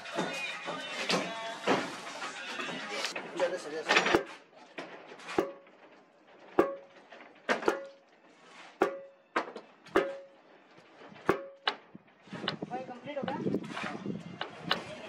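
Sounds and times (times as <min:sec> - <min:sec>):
metal knocking on wooden formwork: 0:03.9 - 0:08.1, 0:08.8 - 0:10.4, 0:11.1 - 0:12.6.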